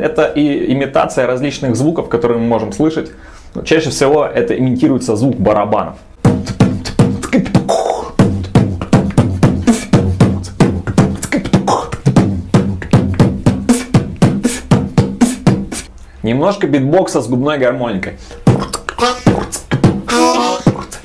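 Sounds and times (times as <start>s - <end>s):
beatboxing: 6.2s - 15.9s, 18.2s - 21.0s.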